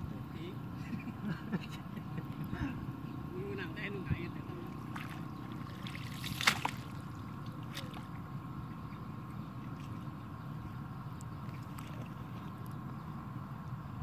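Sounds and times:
water sloshing and dripping: 4.6s - 8.3s, 11.2s - 12.8s
sharp splash: 4.9s - 7.0s.

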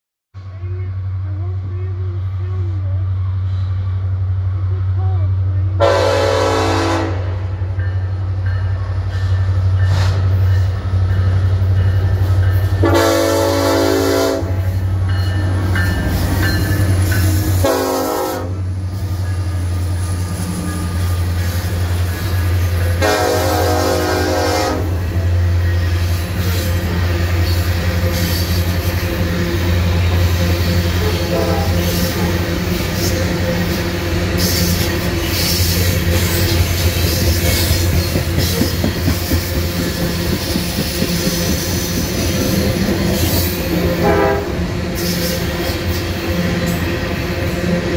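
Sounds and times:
train rumbling past: 0.4s - 47.9s
locomotive horn blasts: 5.8s - 7.4s, 12.8s - 14.7s, 17.6s - 18.7s, 23.0s - 25.1s, 31.0s - 32.3s, 43.8s - 44.7s.

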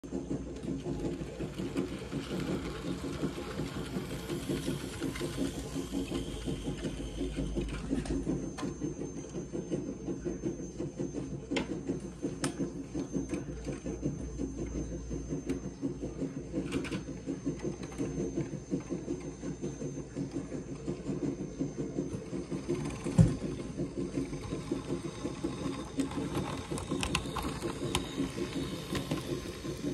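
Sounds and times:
model train clattering: 0.2s - 8.8s, 21.9s - 29.9s.

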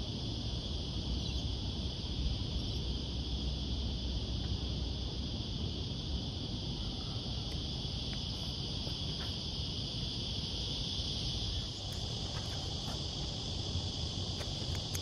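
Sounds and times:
high-pitched insect chorus: 0.0s - 15.0s
light clicks: 14.4s - 15.0s.

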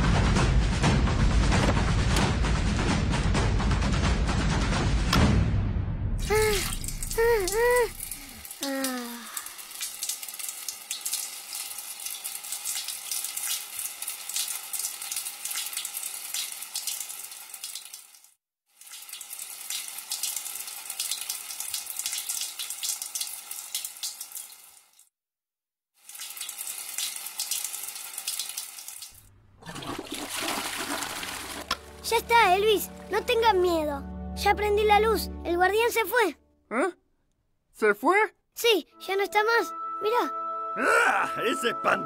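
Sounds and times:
water running and splashing: 6.2s - 25.0s, 26.0s - 33.6s.

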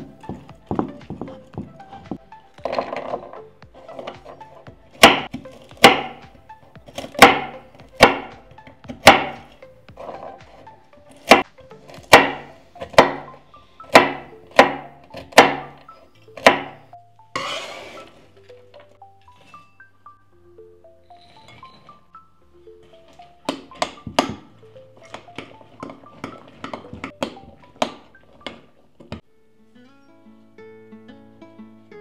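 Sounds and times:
knife chopping on wooden board: 5.0s - 6.2s, 7.0s - 9.4s, 11.2s - 13.3s, 13.9s - 15.8s, 16.4s - 16.8s.

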